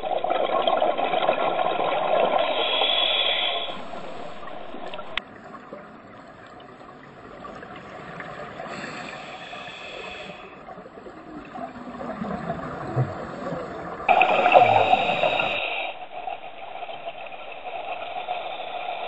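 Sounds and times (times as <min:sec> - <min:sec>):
exhaled air bubbles gurgling: 0:00.0 - 0:19.0
scuba regulator hiss: 0:02.4 - 0:05.0, 0:08.7 - 0:10.5, 0:14.1 - 0:16.0.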